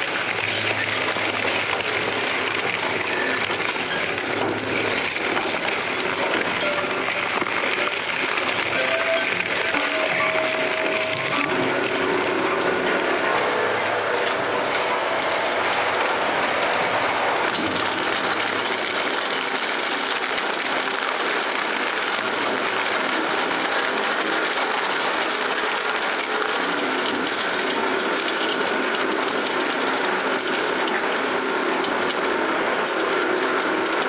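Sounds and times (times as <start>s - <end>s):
shredder running: 0.0s - 20.0s.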